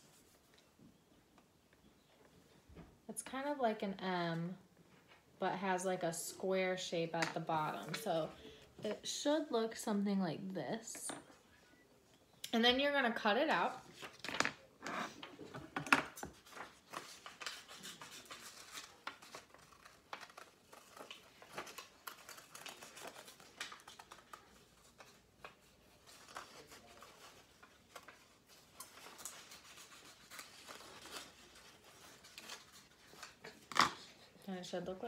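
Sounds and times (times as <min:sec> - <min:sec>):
paper rustling: 0:16.0 - 0:34.3.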